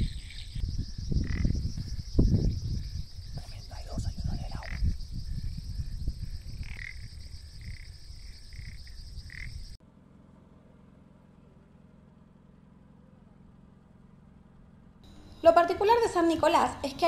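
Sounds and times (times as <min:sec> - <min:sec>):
frogs calling in chorus: 0:00.0 - 0:09.8
faint steady low hum: 0:14.6 - 0:17.0
low rumble: 0:15.0 - 0:16.8.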